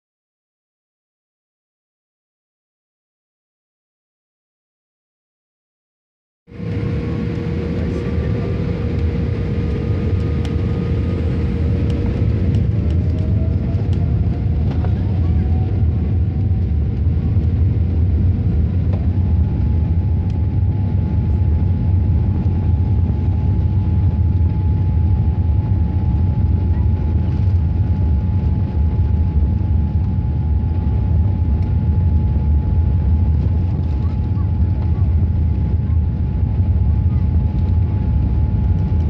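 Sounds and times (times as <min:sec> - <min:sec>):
thin engine whine: 0:06.5 - 0:21.6
jet engine low rumble: 0:06.5 - 0:39.0.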